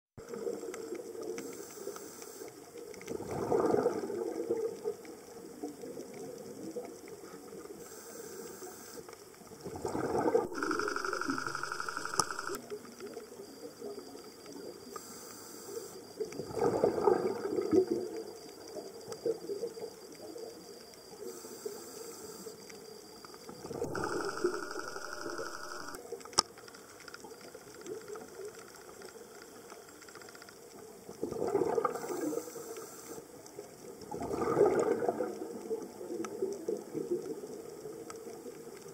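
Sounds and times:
regulator hiss on inhale: 1.4 - 2.7, 7.2 - 9.3, 10.5 - 12.6, 14.9 - 16.2, 21.2 - 22.7, 31.9 - 33.4
gurgling exhaled bubbles: 3.0 - 7.6, 9.5 - 11.5, 16.4 - 18.3, 23.5 - 26.0, 31.1 - 32.6, 34.0 - 37.5.

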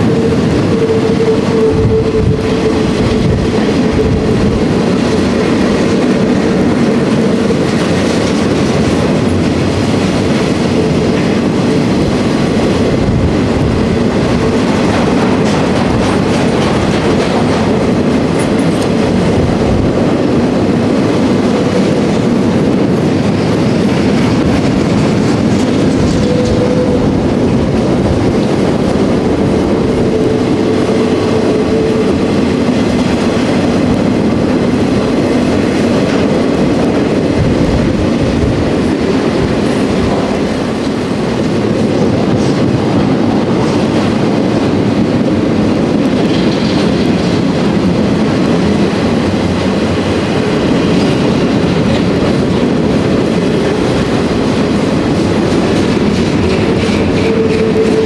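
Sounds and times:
freight cars rumbling on rails: 0.0 - 58.0
wheels clickety-clack over track: 0.0 - 58.0.

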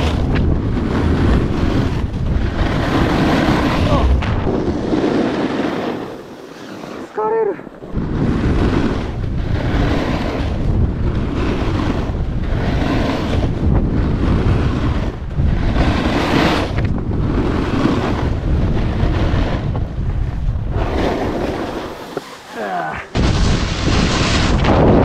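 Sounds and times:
wind rushing over microphone: 0.0 - 6.3, 7.0 - 25.0
snowboard scraping over snow: 0.0 - 25.0.

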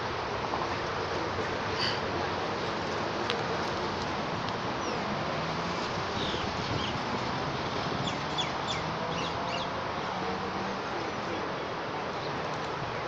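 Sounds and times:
outdoor background noise: 0.0 - 13.0
small birds chirping: 5.8 - 7.1, 8.0 - 9.7.

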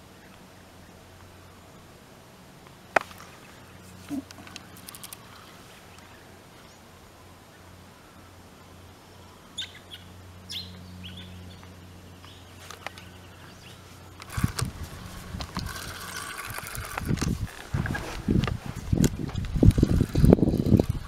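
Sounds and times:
low steady hum: 0.0 - 21.0
birds chirping: 2.9 - 18.1
camera handling rustling: 4.0 - 5.3, 14.2 - 20.2.

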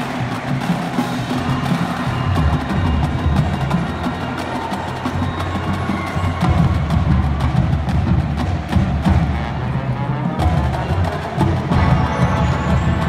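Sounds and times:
brass holding low notes: 8.9 - 13.0.

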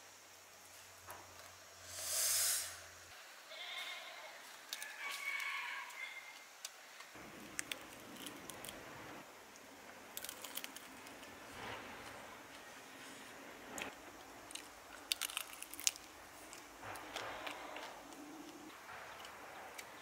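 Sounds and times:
biting and chewing clicks: 7.2 - 8.8, 10.1 - 11.4, 14.4 - 20.0
prawn shell tearing crackle: 7.3 - 8.9, 10.1 - 11.8, 13.8 - 19.3.

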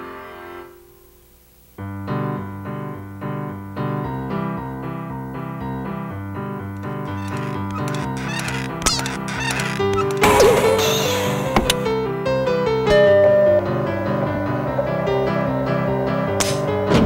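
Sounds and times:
piano music with bouncy tune: 2.3 - 17.0.

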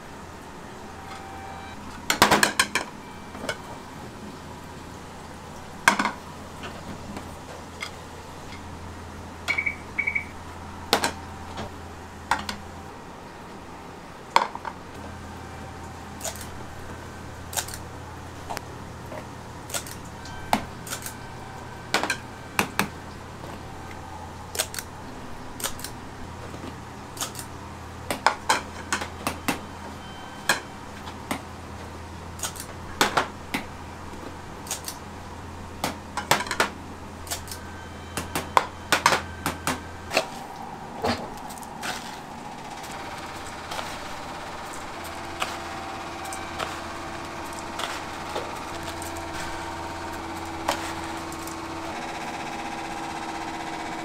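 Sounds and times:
low hum: 0.0 - 54.0
short high beeps: 9.5 - 10.4.

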